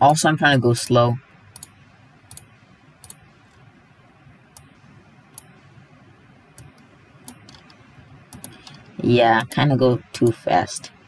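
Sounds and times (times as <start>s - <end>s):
faint steady hiss: 0.0s - 11.0s
computer mouse clicking: 0.8s - 3.7s, 4.5s - 5.6s, 6.5s - 9.6s.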